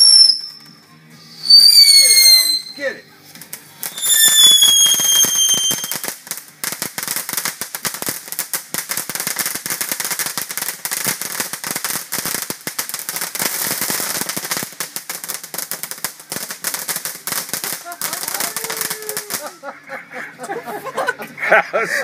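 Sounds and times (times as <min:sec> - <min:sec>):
firework whistle: 0:00.0 - 0:02.8, 0:03.9 - 0:06.0
firework crackling: 0:00.0 - 0:19.8.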